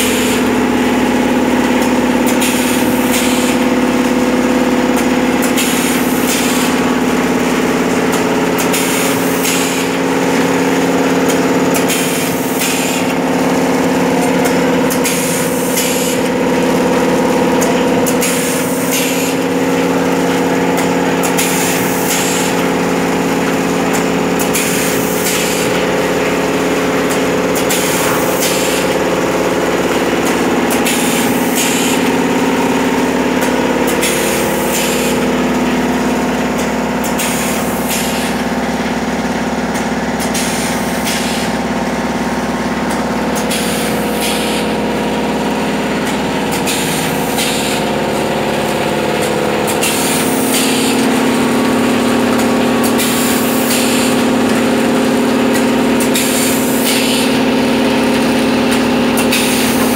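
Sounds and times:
pneumatic hissing bursts: 0.0s - 0.5s, 2.2s - 3.7s, 5.4s - 6.9s, 8.6s - 10.0s, 11.7s - 13.2s, 14.5s - 19.5s, 21.2s - 22.6s, 24.4s - 32.1s, 33.4s - 35.3s, 37.2s - 38.3s, 40.2s - 41.6s, 43.4s - 44.8s, 46.0s - 51.4s, 52.0s - 54.5s, 55.5s - 59.9s
packing machine humming: 0.0s - 59.9s.

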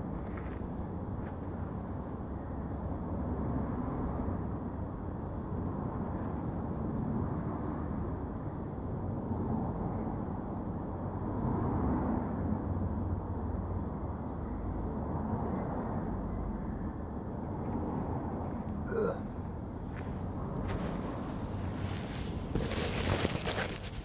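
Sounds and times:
steady low rumble: 17.5s - 22.6s.

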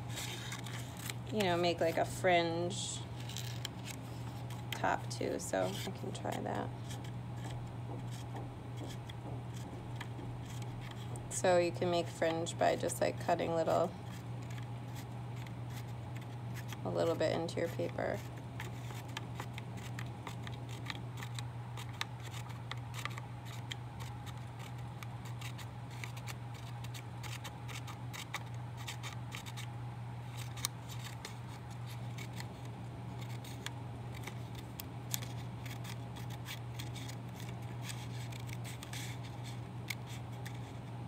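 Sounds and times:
steady low hum: 0.0s - 41.0s
scissors snipping paper: 14.1s - 29.7s, 30.3s - 40.8s.

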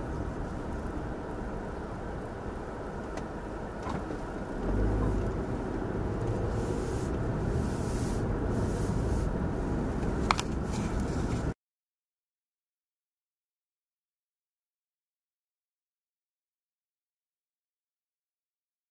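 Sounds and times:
car engine and road noise: 0.0s - 11.6s.

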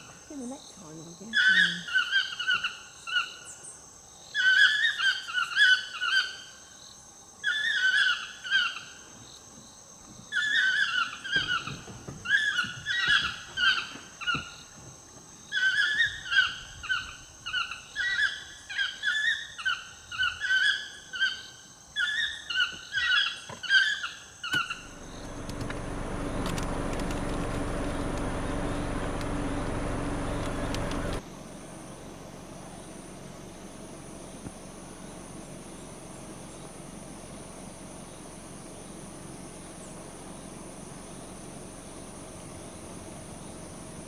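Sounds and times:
toucans yelping calls: 1.2s - 3.6s, 4.3s - 6.6s, 7.4s - 9.0s, 10.3s - 14.6s, 15.5s - 25.3s.

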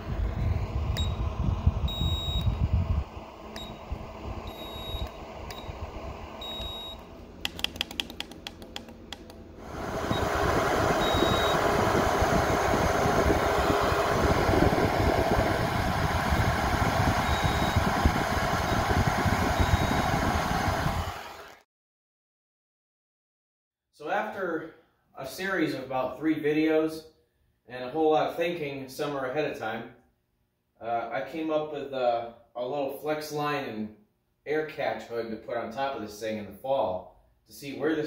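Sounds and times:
low rumble: 0.0s - 7.5s, 8.9s - 20.1s
rush of fan-forced air: 0.0s - 21.5s
thermometer beeping: 1.0s - 1.2s, 1.9s - 2.6s, 3.5s - 3.8s, 4.4s - 5.8s, 6.4s - 7.1s, 10.1s - 10.4s, 11.0s - 11.8s, 17.2s - 17.9s, 19.6s - 20.1s.

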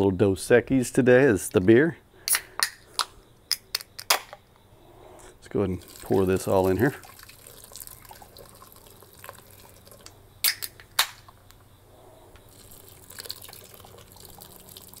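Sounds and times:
beer pouring into metal pot: 5.6s - 10.2s, 12.5s - 15.0s.

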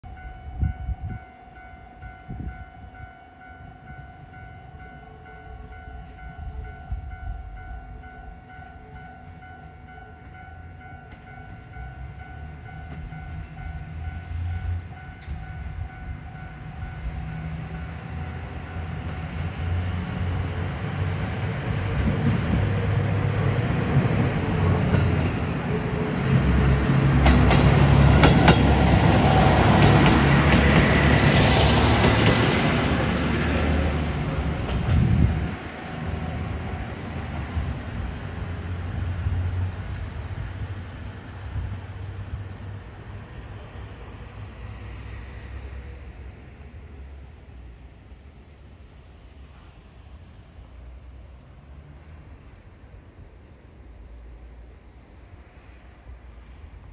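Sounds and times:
train engine: 0.1s - 56.9s
train wheels clattering: 23.9s - 33.1s.

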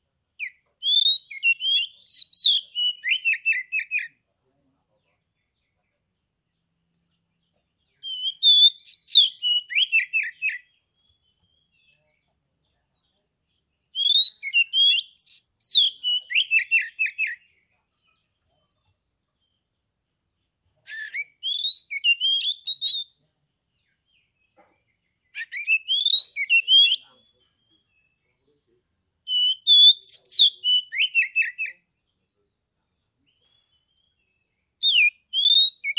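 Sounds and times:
bird singing whistled phrases: 0.4s - 4.2s, 8.0s - 12.0s, 13.9s - 17.5s, 20.9s - 23.2s, 25.3s - 28.1s, 29.3s - 31.8s, 33.4s - 35.9s.

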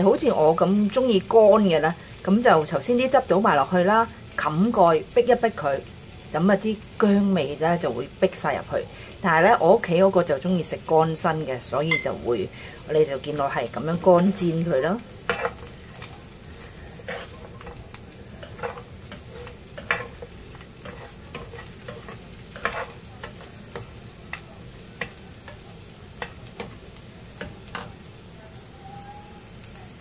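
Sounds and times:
chicken wings sizzling in pan: 0.0s - 30.0s
spatula scraping and tapping pan: 14.1s - 28.1s.

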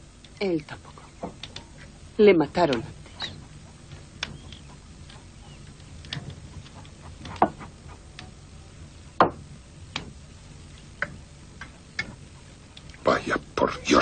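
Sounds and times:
low room hum: 0.0s - 14.0s
sharp light knocks and clicks: 3.9s - 8.3s.

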